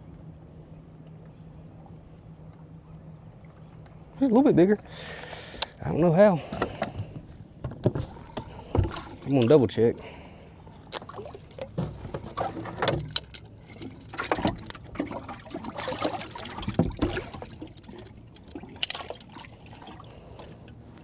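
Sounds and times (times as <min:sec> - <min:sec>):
water sloshing and splashing: 0:06.4 - 0:21.0.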